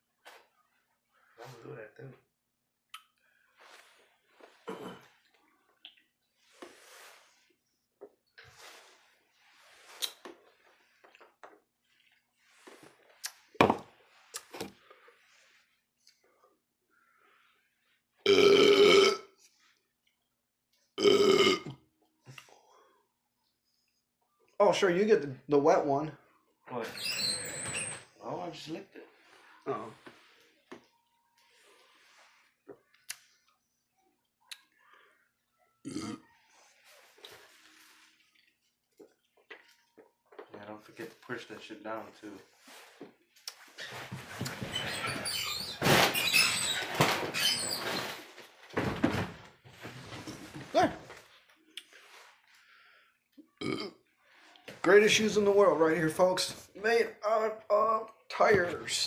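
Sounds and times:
man burping: 4.6 - 5.2, 18.2 - 19.4, 21.0 - 21.8, 35.8 - 36.3, 53.6 - 54.0
breathing: 14.8 - 17.9, 22.3 - 24.0, 51.9 - 53.3.

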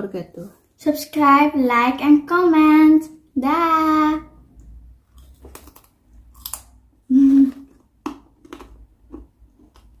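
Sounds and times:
person humming: 7.1 - 7.7.

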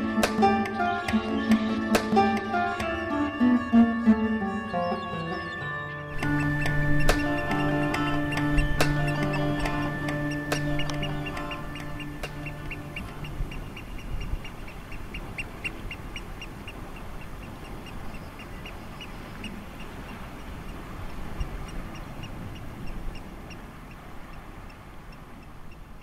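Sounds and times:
oystercatcher piping calls: 0.0 - 26.0
background hiss: 6.1 - 26.0.

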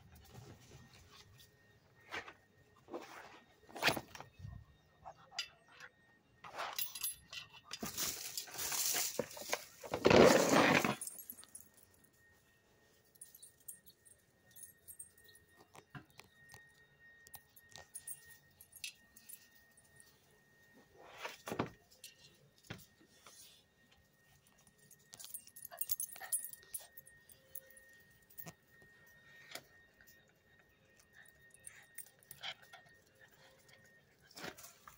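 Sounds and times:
metallic jingling of collar tags: 6.7 - 9.8, 13.1 - 15.6, 24.4 - 34.9.

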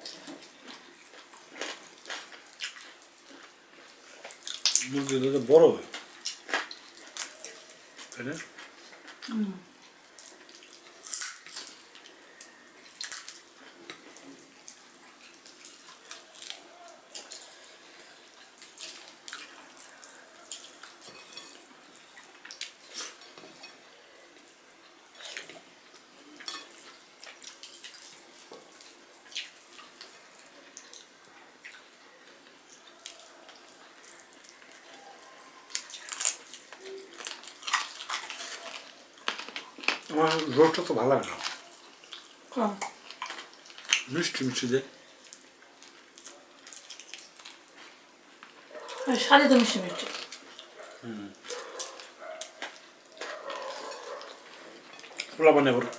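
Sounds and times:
wet chewing and lip smacks: 0.0 - 4.9, 9.9 - 23.5, 24.3 - 40.4, 41.2 - 44.1, 45.2 - 49.2, 50.0 - 55.9.

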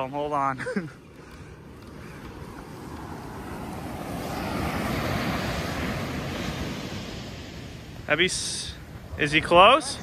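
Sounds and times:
surf breaking on sandy beach: 1.7 - 10.0.

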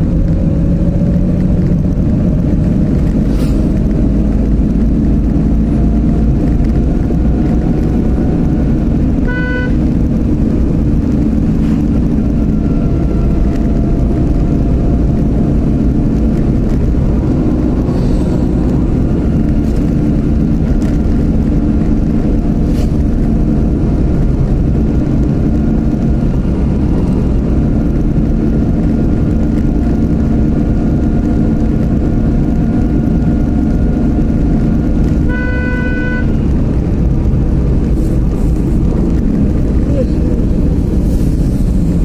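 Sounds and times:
car engine and road noise: 0.0 - 42.0
vehicle horn: 9.2 - 9.9, 35.2 - 36.4.

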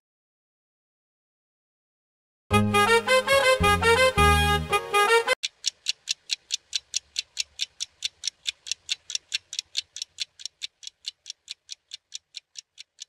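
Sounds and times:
clock ticking: 5.4 - 13.0.

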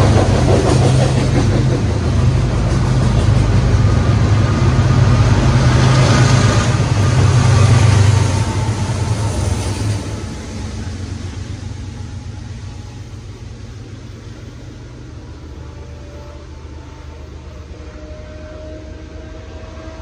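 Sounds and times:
diesel locomotive engine drone: 0.0 - 20.0
train wheels rumbling on rails: 0.0 - 20.0.

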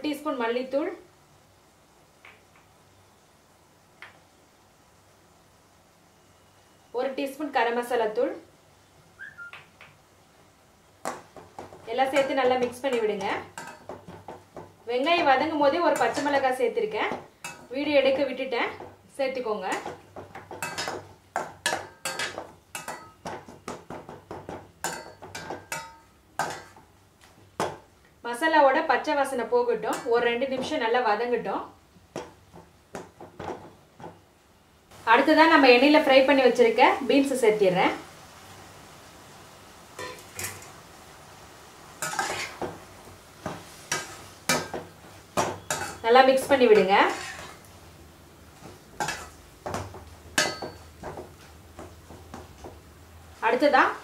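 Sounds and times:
metal spoon scraping a pan: 12.0 - 14.3, 15.1 - 18.9, 19.7 - 23.3, 24.8 - 26.8, 29.9 - 30.7, 40.0 - 40.7, 42.0 - 42.7, 43.5 - 47.7, 49.0 - 51.2
metal spatula scraping a pot: 42.0 - 42.6, 46.7 - 47.7.

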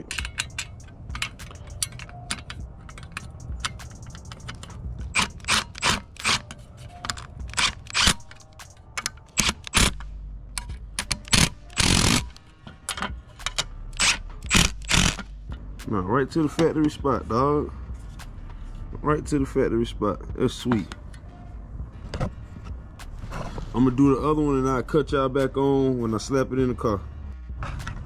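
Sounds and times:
speaker bracket clicks and taps: 0.0 - 5.3.

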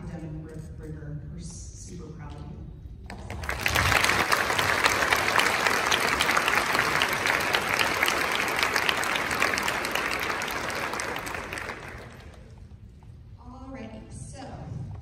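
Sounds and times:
audience applauding: 3.2 - 12.6.

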